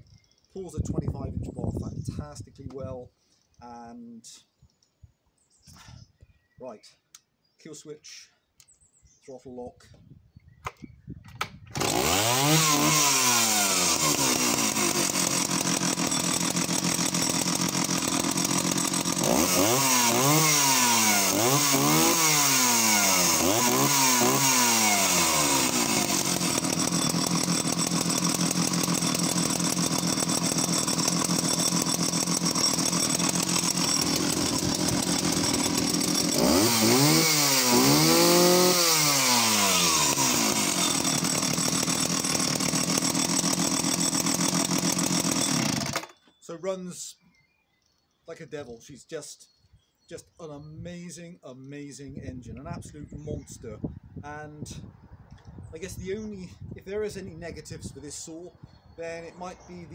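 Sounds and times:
chainsaw pull-started: 11.3s - 46.3s
chainsaw revving: 11.7s - 46.2s.

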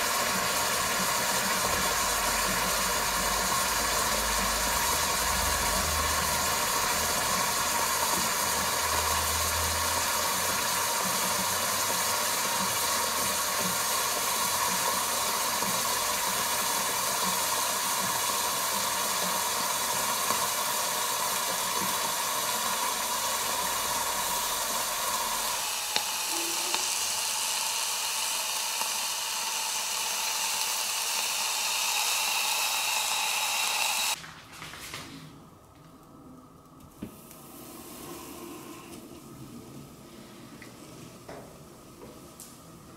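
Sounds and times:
hot metal sizzling in liquid: 0.0s - 34.2s.

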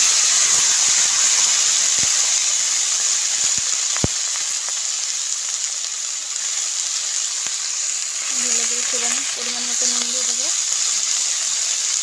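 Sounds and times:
vegetables sizzling in hot oil: 0.0s - 12.0s.

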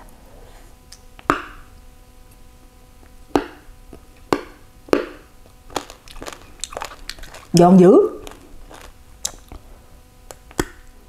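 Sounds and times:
person chewing crunchy food: 4.2s - 10.9s.

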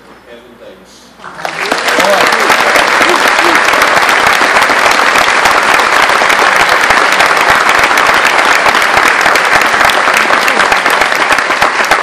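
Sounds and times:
audience applauding: 1.2s - 12.0s.

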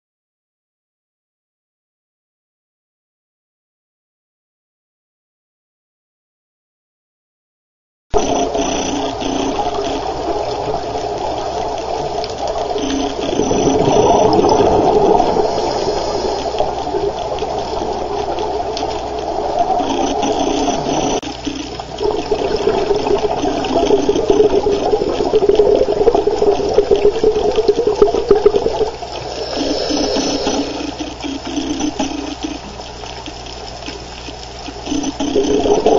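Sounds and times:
exhaled bubbles rushing underwater: 8.2s - 35.9s.

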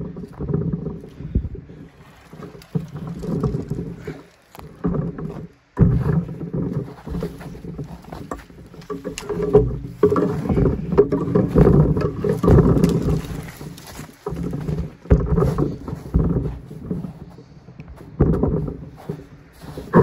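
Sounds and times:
branches brushing and scraping: 0.0s - 20.0s
footsteps crunching leaves and snow: 12.2s - 15.8s.

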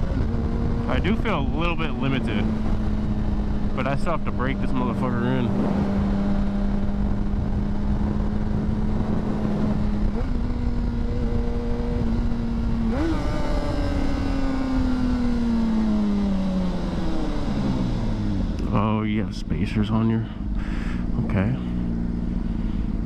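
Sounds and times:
wind rush: 0.0s - 12.9s
motorcycle engine running: 0.0s - 23.0s.

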